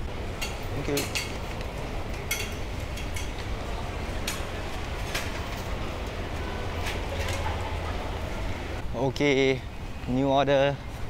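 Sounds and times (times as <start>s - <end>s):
city street rumble: 0.0s - 11.0s.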